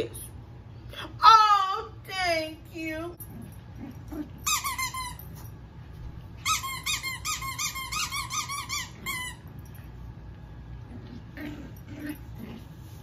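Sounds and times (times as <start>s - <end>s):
squeaky dog toy squeaking: 4.4s - 5.4s, 6.4s - 9.5s.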